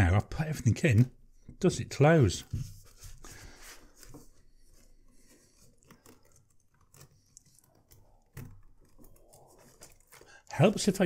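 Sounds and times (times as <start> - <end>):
leather folio rustling: 2.5 - 11.0.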